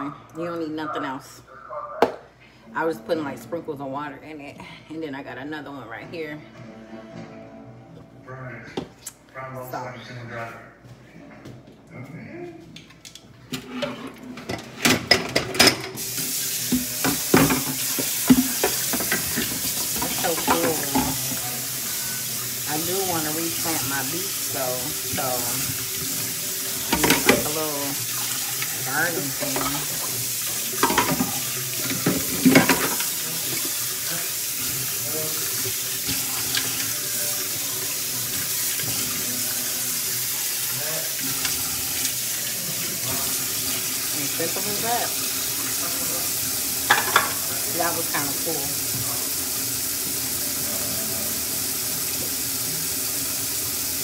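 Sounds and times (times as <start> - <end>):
dishes and utensils clattering: 13.0 - 21.5, 25.1 - 33.9, 46.8 - 48.5
water running from tap into sink: 14.8 - 54.0.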